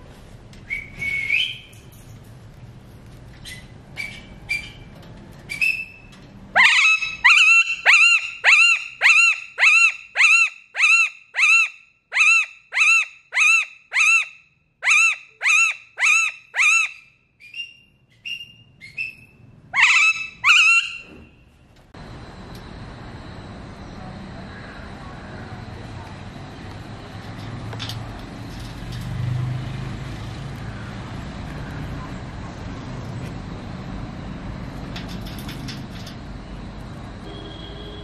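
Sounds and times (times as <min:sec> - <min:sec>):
parakeet loud descending calls: 0:06.6 - 0:17.0, 0:19.8 - 0:21.0.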